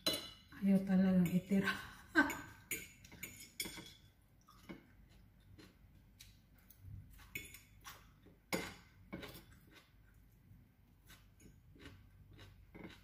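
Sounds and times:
fork clinking on ceramic bowl: 2.3s - 4.1s.

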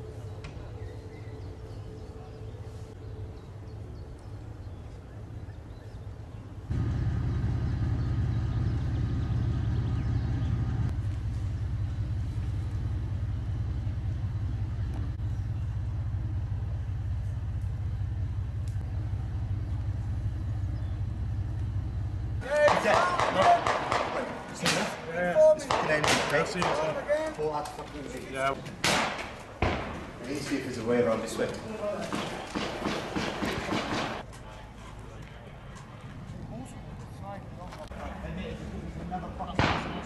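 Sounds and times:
steady low rumble: 0.0s - 22.4s.

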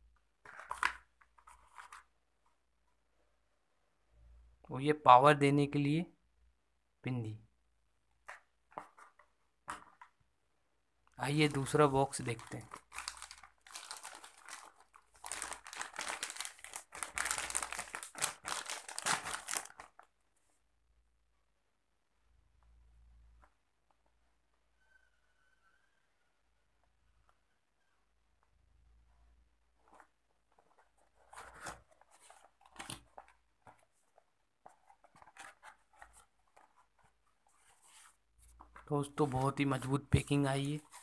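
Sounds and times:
paper packing rustling: 11.3s - 20.1s, 29.7s - 41.0s
plastic packaging crinkling: 11.3s - 20.2s.

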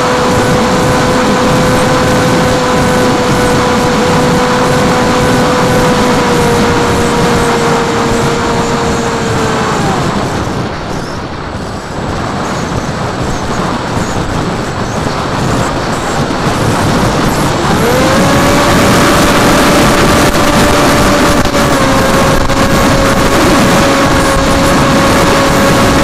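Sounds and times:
electric motor and propeller whine: 0.0s - 26.0s
wind rushing over airframe: 0.0s - 26.0s.

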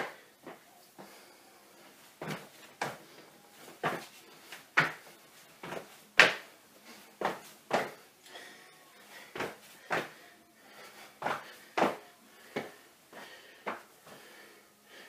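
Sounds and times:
feet thudding on tiled floor: 2.2s - 3.0s, 3.7s - 6.5s, 7.2s - 8.0s, 9.2s - 10.2s, 11.2s - 14.3s.

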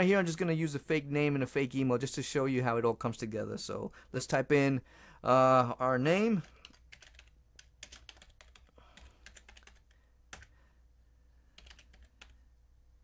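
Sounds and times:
typing on a computer keyboard: 6.4s - 10.5s, 11.6s - 12.4s.

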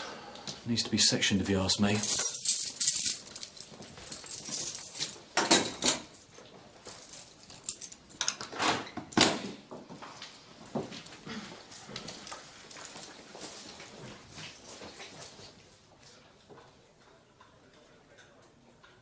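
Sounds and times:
keys jangling: 1.9s - 8.2s.

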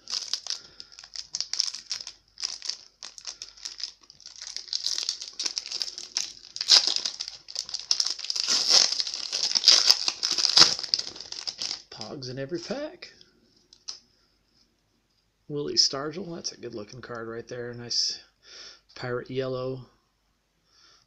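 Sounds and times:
foil wrapper crinkling and tearing: 0.0s - 12.8s.

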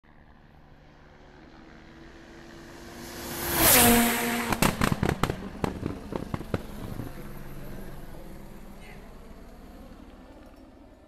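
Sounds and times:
race car passing by: 0.3s - 9.2s
exhaust pops and bangs: 4.4s - 7.2s.

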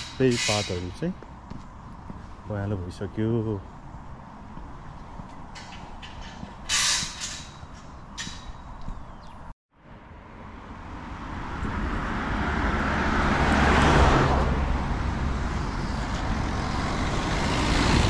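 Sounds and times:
steady traffic noise: 0.0s - 18.0s
car passing close by: 10.6s - 18.0s.

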